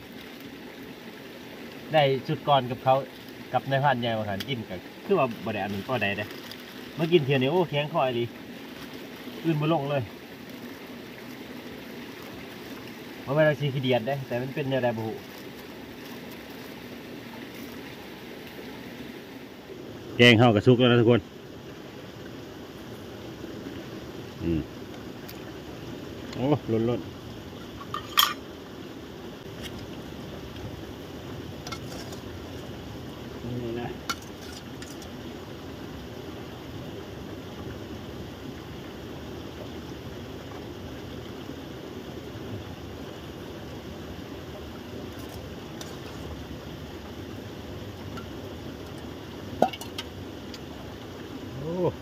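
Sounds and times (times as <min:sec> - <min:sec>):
steady background hiss: 0:00.0 - 0:52.0
metal clinking on a bowl: 0:27.8 - 0:28.4.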